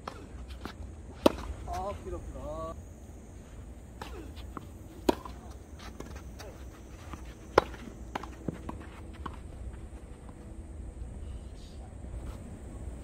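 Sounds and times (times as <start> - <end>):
rackets striking tennis ball: 0.0 - 2.0, 3.9 - 10.4.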